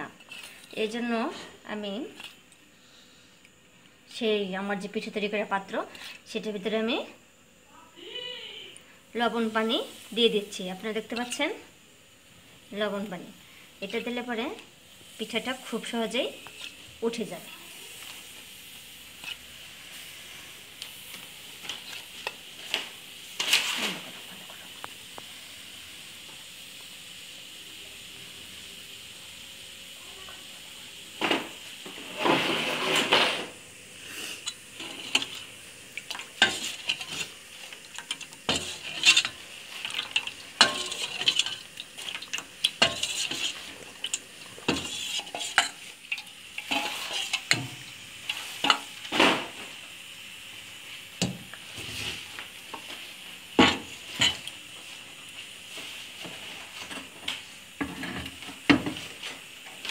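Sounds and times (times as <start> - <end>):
faint sizzle: 0.0 - 59.9
spoon stirring in steel bowl: 34.4 - 48.9.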